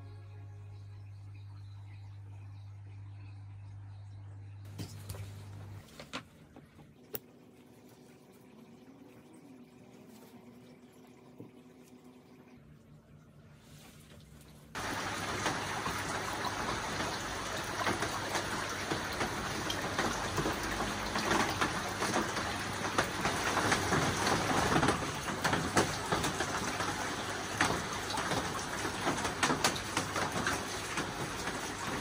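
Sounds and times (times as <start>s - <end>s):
falling water wash: 14.7s - 32.0s.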